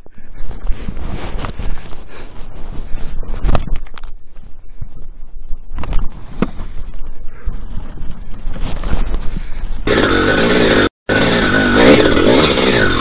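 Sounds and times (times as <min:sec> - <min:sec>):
wind rumble on microphone: 0:00.0 - 0:09.9
footsteps crunching in snow: 0:00.4 - 0:03.5.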